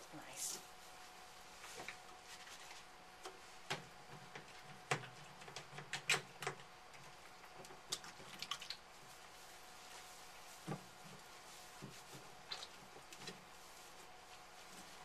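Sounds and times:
hands working wet fur: 6.6 - 15.0.

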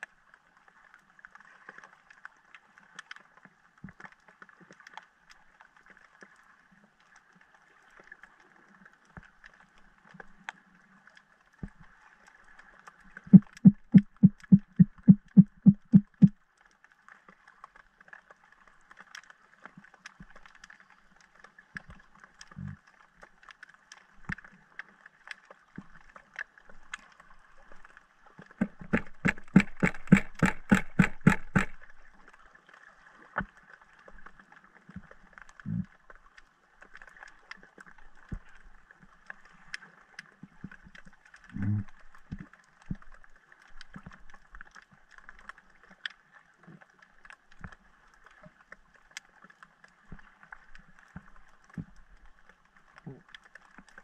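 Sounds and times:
low thumps: 13.3 - 16.3
rapid evenly spaced knocks: 13.4 - 16.3, 28.6 - 31.8.

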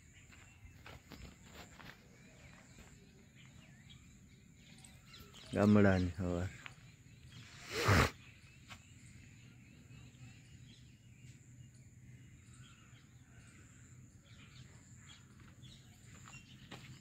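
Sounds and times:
birds chirping: 0.0 - 17.0
high insect buzz: 7.3 - 8.3
loud breathy burst: 7.5 - 8.2.

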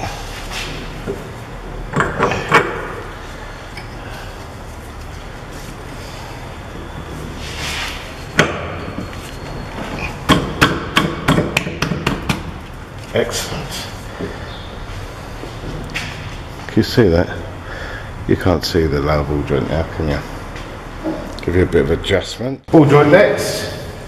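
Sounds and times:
metal scrape: 7.1 - 8.3.

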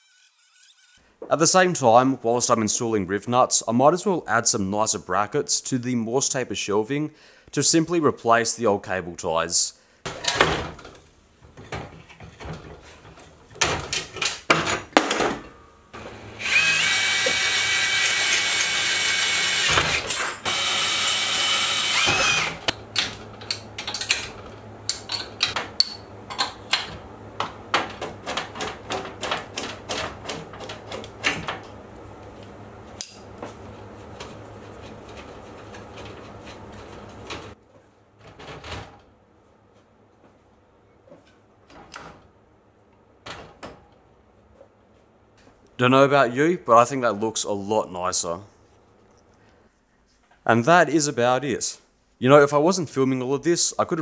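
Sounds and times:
power drill running: 16.0 - 22.7
hand tools clicking and knocking: 22.0 - 31.7.

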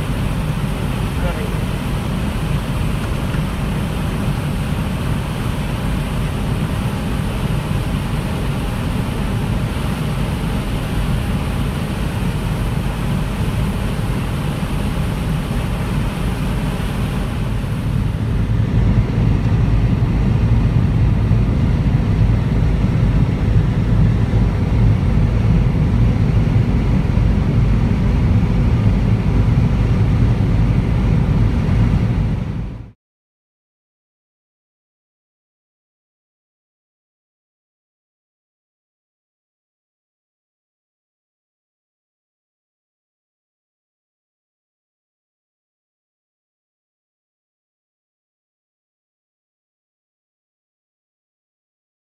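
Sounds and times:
harvest machinery engine hum: 0.0 - 32.9.

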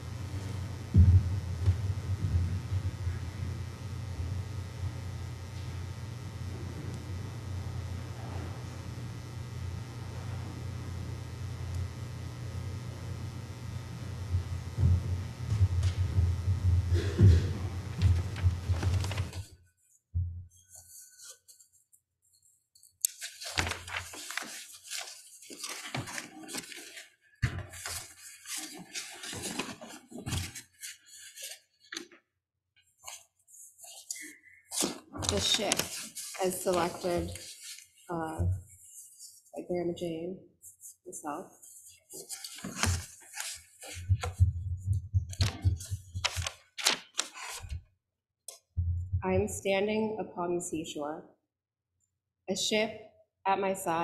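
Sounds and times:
pages bumping against lectern: 17.0 - 19.5, 23.1 - 32.1, 42.2 - 44.5, 45.3 - 47.8
paper rustling and shuffling: 17.4 - 19.5, 23.1 - 32.0, 33.0 - 38.0, 41.6 - 44.5, 45.3 - 47.8.

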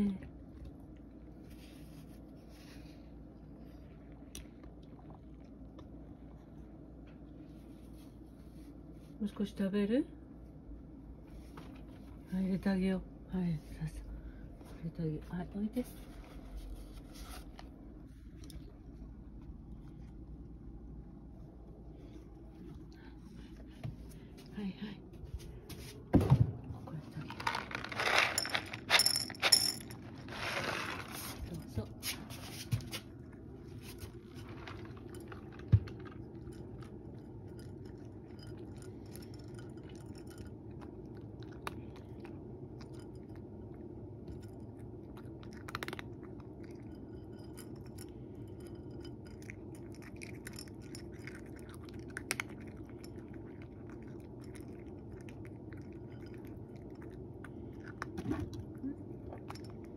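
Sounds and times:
cat crunching kibble: 27.2 - 31.6, 32.8 - 47.1, 47.7 - 59.9
kibble rattling onto ceramic dish: 27.3 - 31.1.

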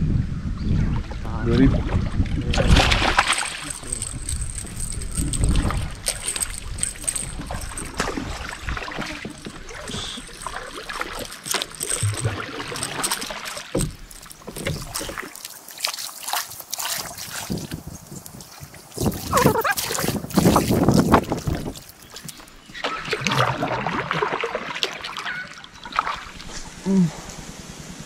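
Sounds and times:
water splashing and lapping: 0.8 - 27.8
knocks and clicks against boat: 1.6 - 16.0.

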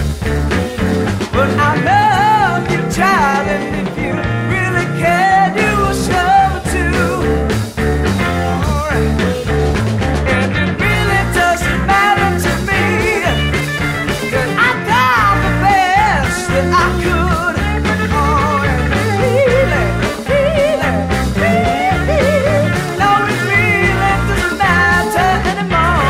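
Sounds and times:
electric guitar lead bending pitch: 0.0 - 26.0
rock band playing: 0.0 - 26.0.

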